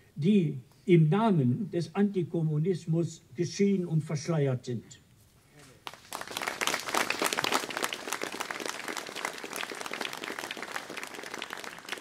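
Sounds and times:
audience clapping: 5.8 - 12.0.

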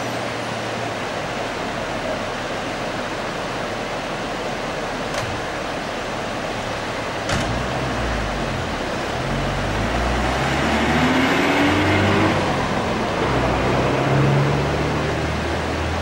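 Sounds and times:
whitewater rapids roaring: 0.0 - 16.0.

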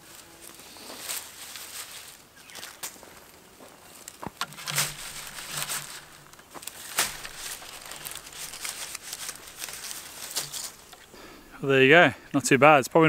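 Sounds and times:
stiff fronds rustling and scratching: 0.0 - 12.2
sharp crackles: 3.9 - 11.7.

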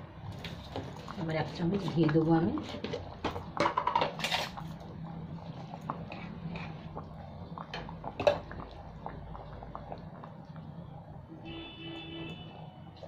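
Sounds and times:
gravy bubbles popping: 4.6 - 11.2.

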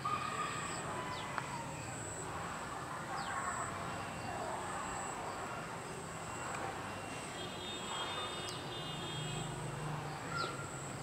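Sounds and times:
bird chirps: 10.1 - 11.0.

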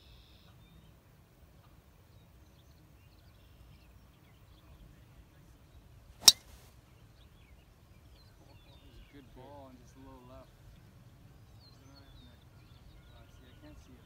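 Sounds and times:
golf club striking ball: 6.2 - 6.6.

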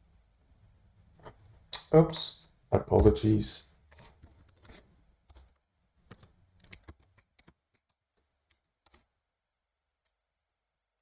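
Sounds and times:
keyboard typing: 3.9 - 9.1.

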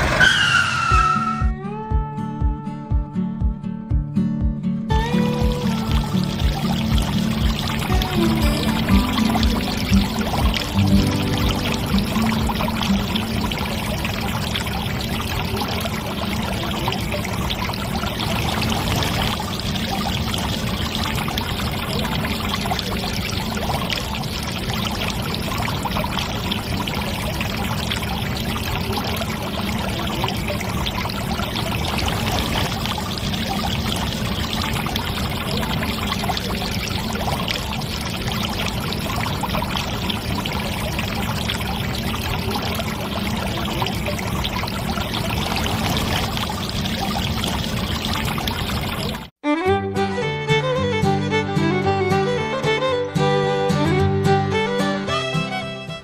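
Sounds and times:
water pouring onto wet sand: 5.5 - 49.3.

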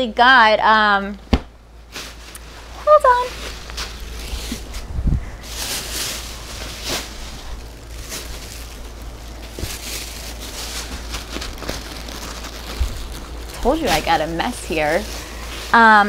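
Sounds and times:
packaging and bags rustling: 1.8 - 16.0.

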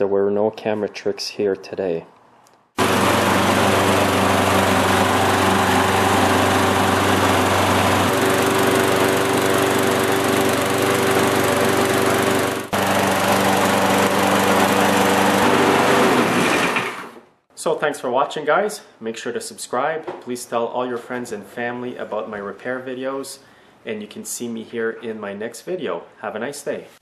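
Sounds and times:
lawnmower engine running: 2.8 - 17.2.

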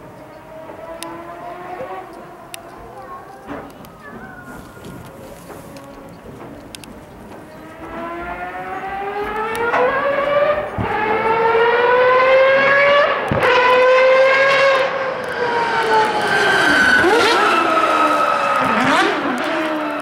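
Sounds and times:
rotary engine accelerating: 0.0 - 2.6, 7.6 - 20.0.

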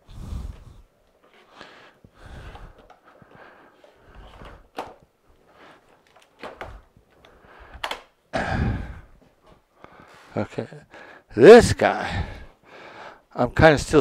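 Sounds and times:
plastic parts clicking and knocking: 2.5 - 5.1, 5.9 - 8.2.

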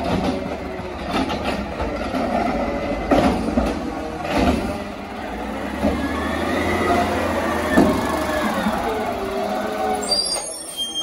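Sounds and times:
metal clanks and knocks: 0.0 - 4.8
garbage truck engine running: 0.0 - 10.0.

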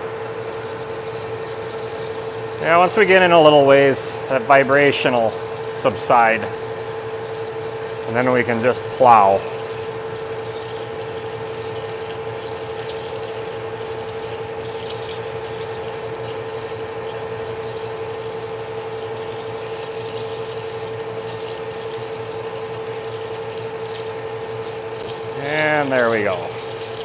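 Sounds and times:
coolant splashing: 0.0 - 27.0.

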